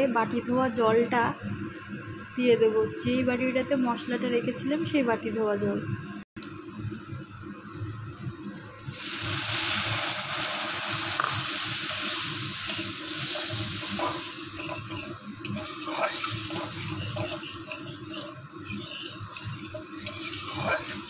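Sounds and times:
water hissing in hot oil: 6.4 - 21.0
spatula scraping wok: 9.2 - 21.0.

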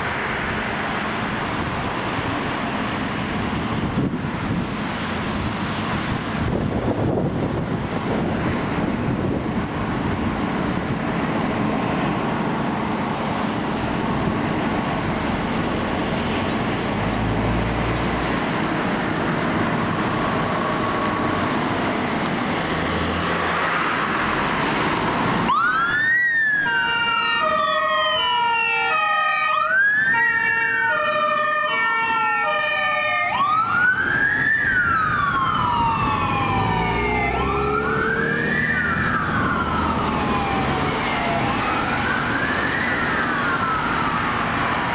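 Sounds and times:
fire engine engines rumbling: 0.0 - 44.9
wailing sirens: 0.0 - 44.9
two-tone siren: 25.4 - 44.9.

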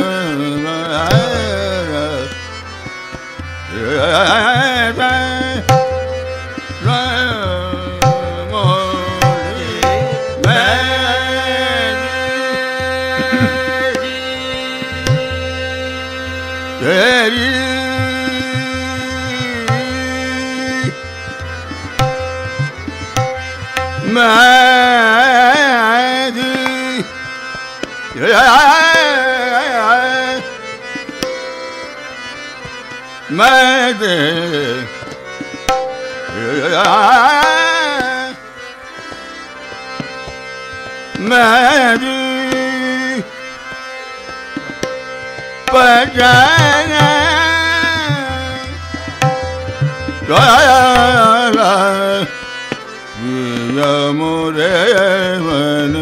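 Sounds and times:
man singing with ornamented glides: 0.0 - 56.0
tanpura drone: 0.0 - 56.0
tabla strokes: 4.0 - 25.5, 44.3 - 52.8.

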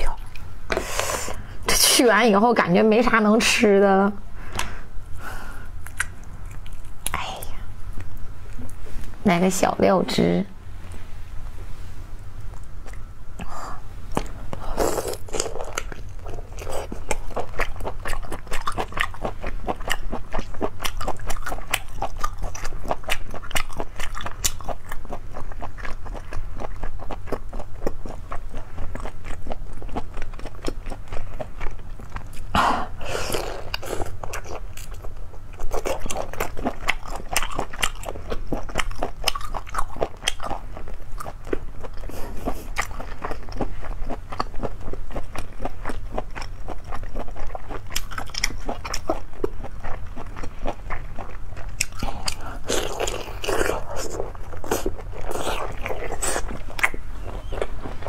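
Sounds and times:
close chewing crunches: 14.2 - 32.6, 33.3 - 58.0.

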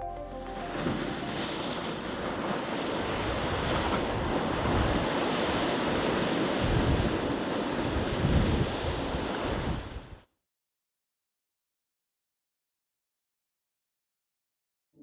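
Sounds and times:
floodwater rushing and roaring: 0.4 - 10.2
wind buffeting microphone: 0.7 - 10.2.

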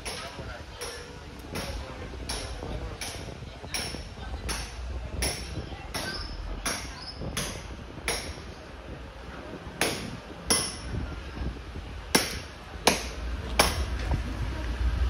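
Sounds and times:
low street rumble: 0.0 - 15.0
sharp knocks: 12.1 - 13.9.

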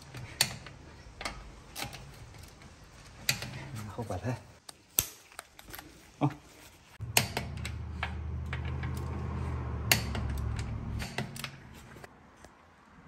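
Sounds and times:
tool clicks and taps: 9.9 - 11.6.

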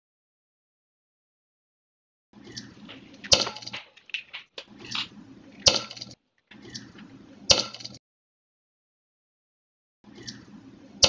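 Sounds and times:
egg dropping wet rustle: 2.8 - 6.2.

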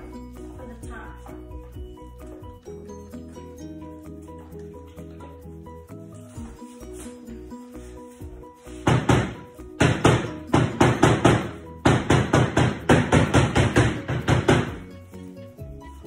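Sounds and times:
soft background music: 0.0 - 16.0.

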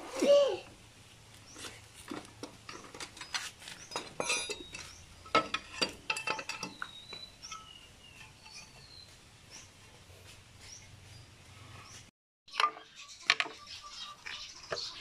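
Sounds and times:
metal tool clinking on engine cover: 2.7 - 9.0
short metallic rings: 3.9 - 9.0.

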